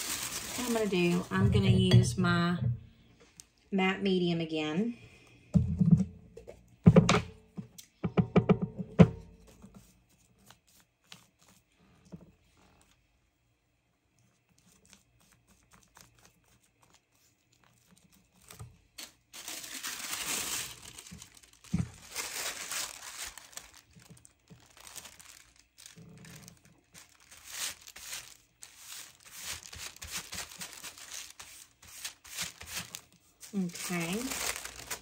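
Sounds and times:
tissue paper rustling: 0.0s - 1.9s, 15.7s - 35.0s.

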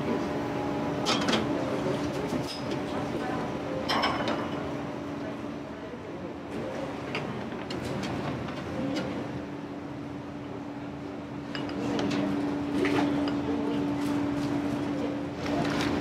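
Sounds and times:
steady mechanical hum: 0.0s - 16.0s
utensils and dishes clinking: 3.9s - 4.6s.

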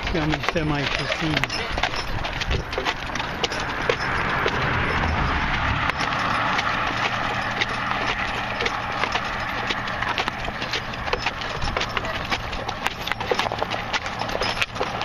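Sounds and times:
horse hooves on pavement: 0.0s - 15.0s
rushing noise: 3.7s - 9.5s.

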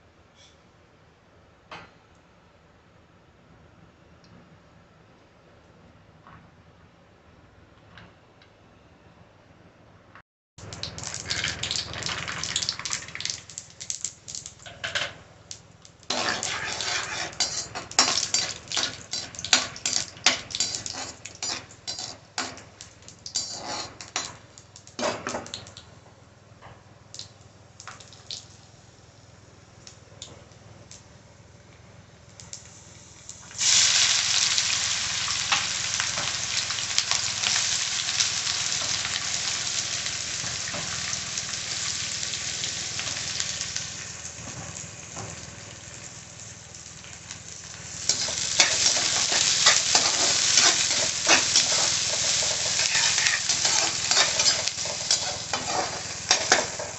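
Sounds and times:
peanuts crackling in hot oil: 10.6s - 14.9s, 15.5s - 25.8s, 27.1s - 28.6s, 32.4s - 56.9s
onions sizzling in oil: 16.1s - 25.1s, 32.7s - 56.9s.

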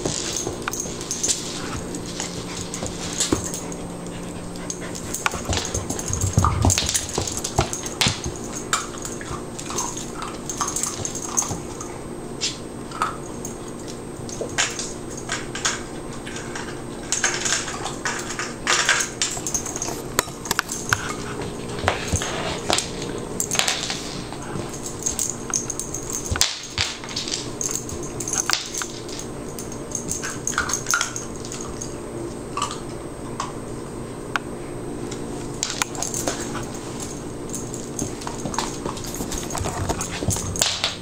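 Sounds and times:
rubber toy and kibble clattering: 4.8s - 11.6s.

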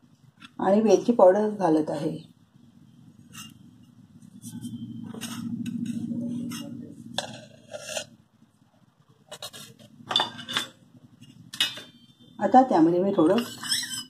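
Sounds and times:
clicks and scrapes on steel bowl: 3.3s - 3.6s, 4.5s - 8.2s, 13.3s - 14.0s.

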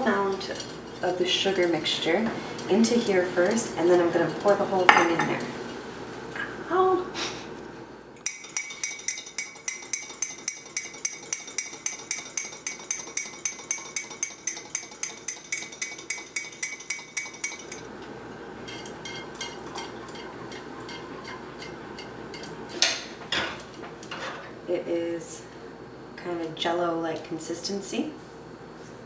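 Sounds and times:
whisk clinking in metal mug: 8.2s - 17.9s, 18.7s - 22.6s.

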